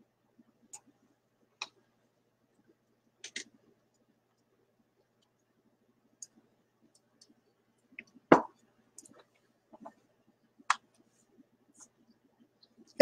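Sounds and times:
faint clicks: 6.2s - 8.2s.

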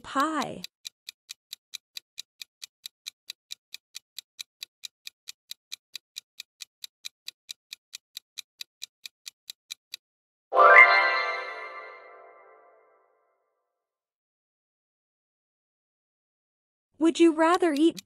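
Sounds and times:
clock ticking: 0.0s - 10.0s, 17.0s - 18.0s.

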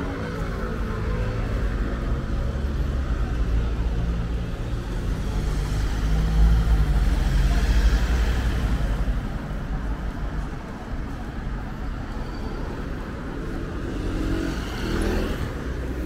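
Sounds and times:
cars driving past: 11.1s - 16.0s.

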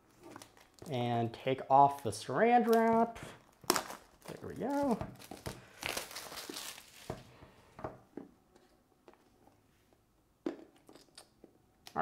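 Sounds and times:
plastic shrink wrap crinkling: 0.0s - 7.3s.

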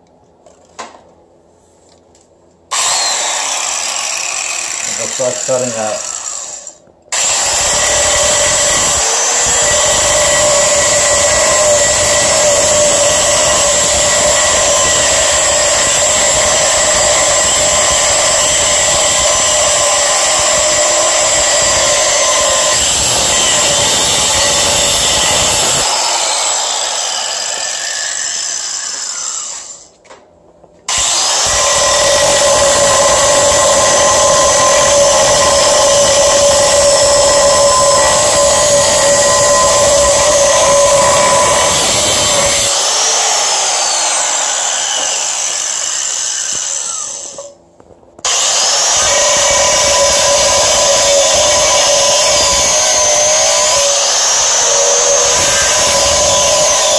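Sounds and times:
angle grinder cutting metal: 2.7s - 29.9s, 30.9s - 47.6s, 48.2s - 56.9s.

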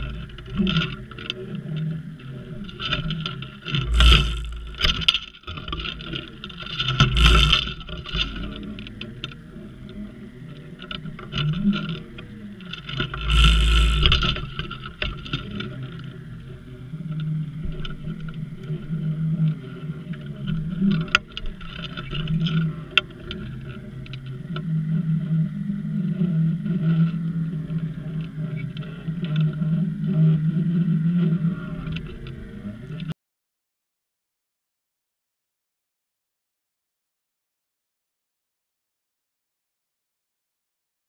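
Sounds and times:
muffled boat engine underwater: 0.0s - 33.1s
loud bump: 3.9s - 5.0s
sharp clicks: 13.3s - 14.3s.

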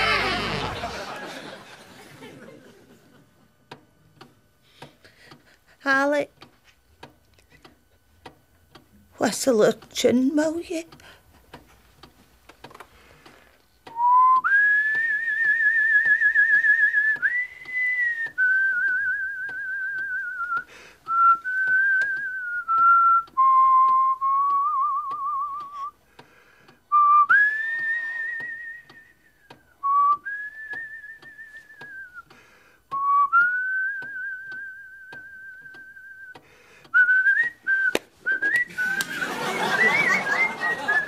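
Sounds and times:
person whistling a slow tune: 13.9s - 26.0s, 26.9s - 41.0s.

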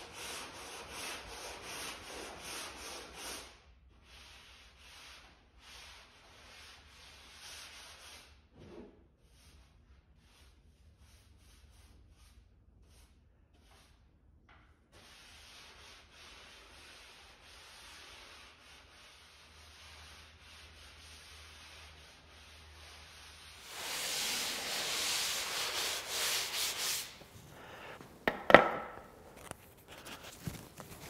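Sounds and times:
dry rubbing on wooden hull: 15.7s - 28.0s.

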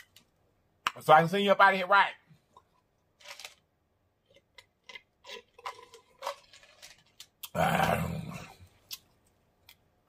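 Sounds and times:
gulps: 7.4s - 8.7s.

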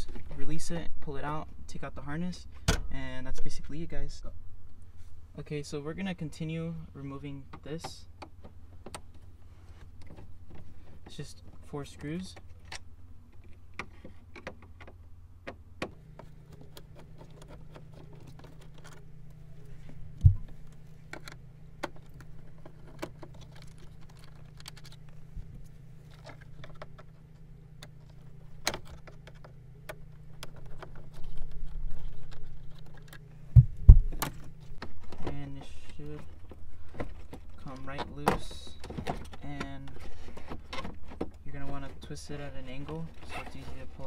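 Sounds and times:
dull thump: 20.2s - 20.6s, 33.5s - 34.4s.

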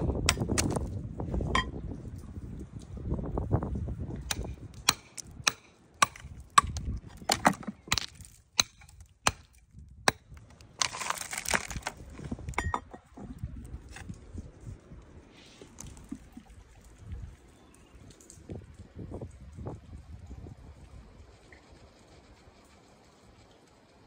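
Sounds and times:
sharp knocks and cracks: 0.2s - 0.9s, 4.2s - 13.3s.

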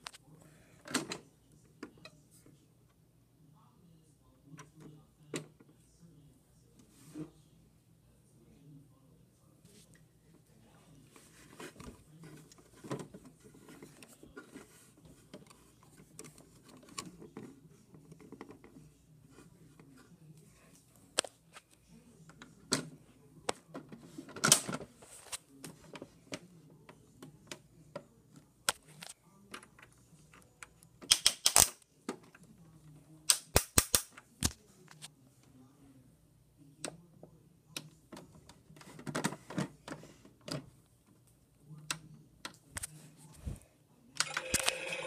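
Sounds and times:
plastic toy clicks and knocks: 31.1s - 31.8s.

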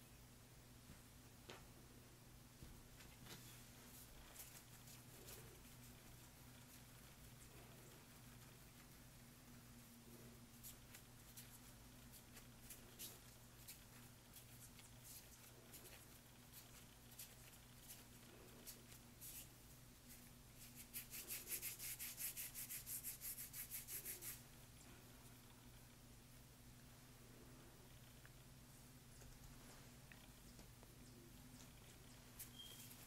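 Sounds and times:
low steady hum: 0.0s - 33.0s
hands rubbing bread dough: 3.0s - 24.5s.

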